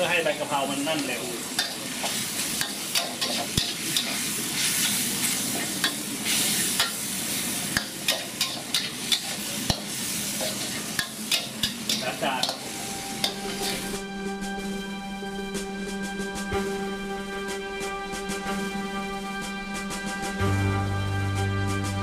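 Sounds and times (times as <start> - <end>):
food sizzling in a wok: 0.0 - 17.3
spatula scraping a wok: 1.6 - 14.0.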